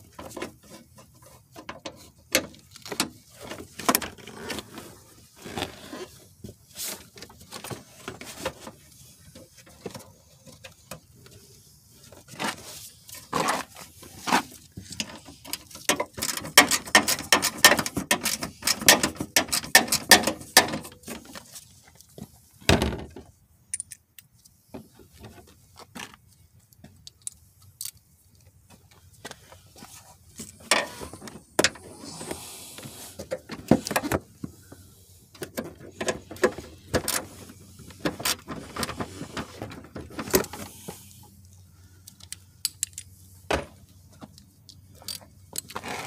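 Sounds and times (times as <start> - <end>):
plastic parts clicking and rattling: 14.8 - 21.4.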